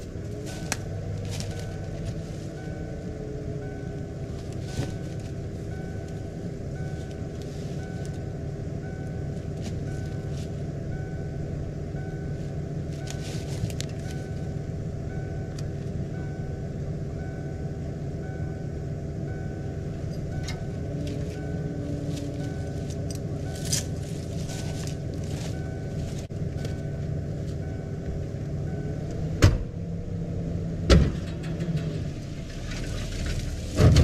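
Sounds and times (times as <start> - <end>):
pickup engine idling: 0.0 - 34.0.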